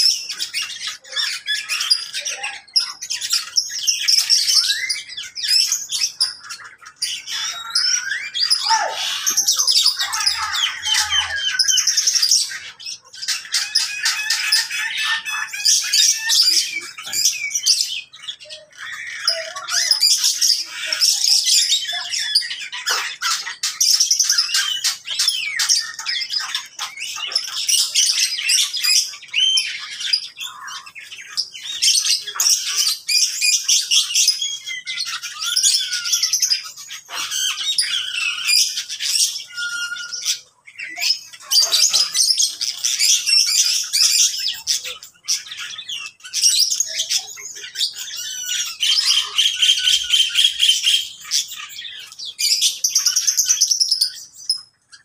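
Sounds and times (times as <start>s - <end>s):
small birds chirping: 0.0s - 55.0s.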